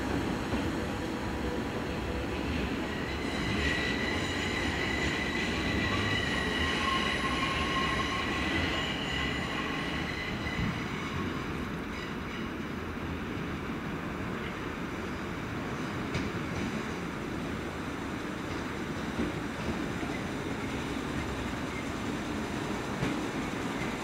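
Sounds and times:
high-pitched train whine: 0.0 - 12.5.

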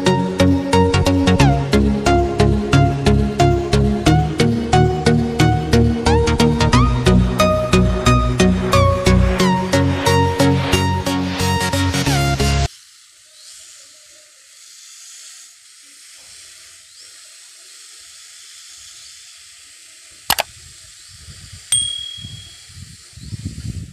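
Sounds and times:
spray nozzle mist hiss: 12.7 - 23.5
sharp click: 20.3 - 20.5
brief ringing tone: 21.7 - 22.6.

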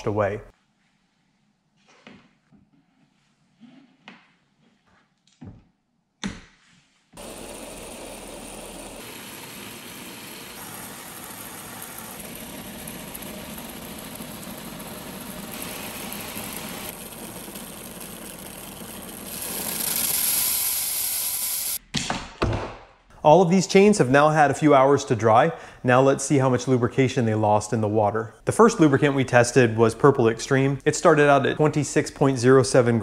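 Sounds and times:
pressure sprayer water hiss: 7.2 - 21.8.

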